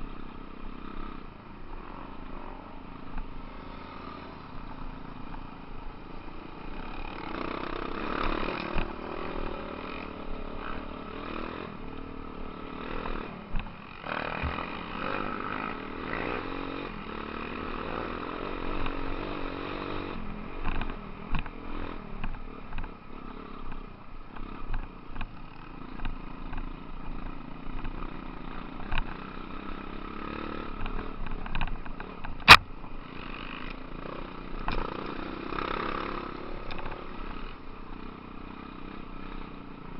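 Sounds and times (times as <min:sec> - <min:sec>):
dirt bike engines: 0:00.0 - 0:39.9
sharp crack: 0:32.4 - 0:32.7.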